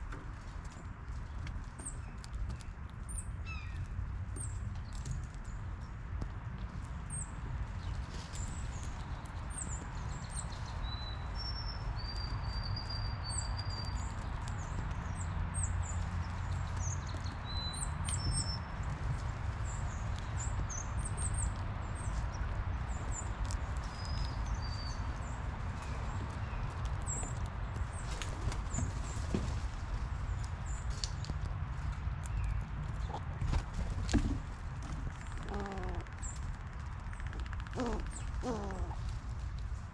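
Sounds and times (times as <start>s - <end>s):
songbirds chipping and whistling: 1.2s - 6.0s, 7.1s - 29.3s, 35.1s - 39.2s.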